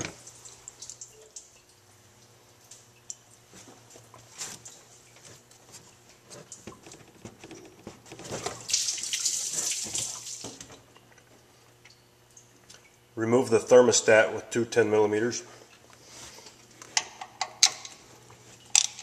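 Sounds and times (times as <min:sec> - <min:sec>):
coolant dripping and splashing: 0:00.0 - 0:13.1.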